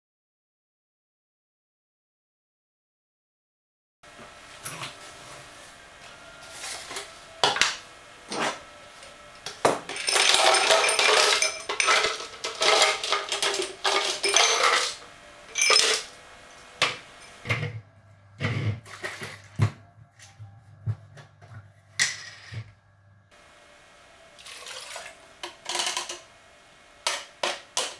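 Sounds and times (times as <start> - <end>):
ice cubes clattering into plastic bottle: 9.7 - 16.1.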